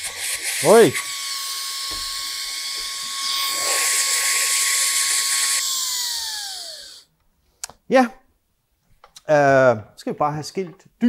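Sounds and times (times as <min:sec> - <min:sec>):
dust blower whine: 0:00.0 - 0:07.0.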